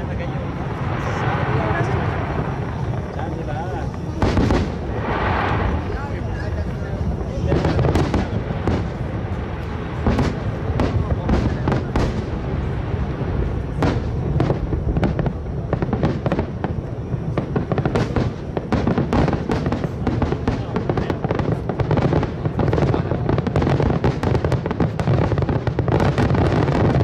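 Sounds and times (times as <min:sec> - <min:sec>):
low rumble: 0:00.0 - 0:17.6
fireworks crackling: 0:00.0 - 0:27.0.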